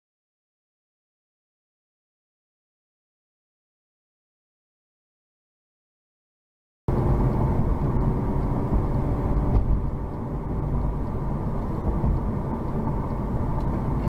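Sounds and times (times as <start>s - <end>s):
car engine and road noise: 6.9s - 14.0s.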